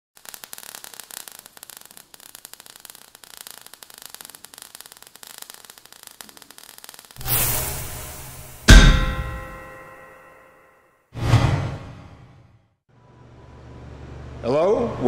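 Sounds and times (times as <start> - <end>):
crackling static: 0.2 - 8.7.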